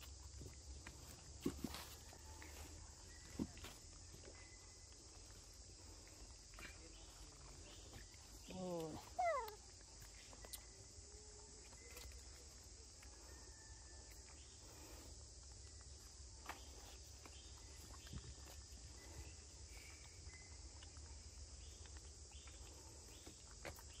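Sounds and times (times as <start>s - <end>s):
soft ticks and rustles: 14.1s - 24.0s.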